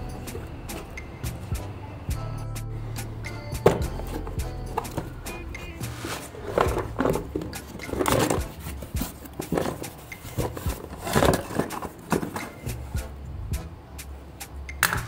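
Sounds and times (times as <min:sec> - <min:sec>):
cardboard box rustling and scraping: 0:03.7 - 0:12.6.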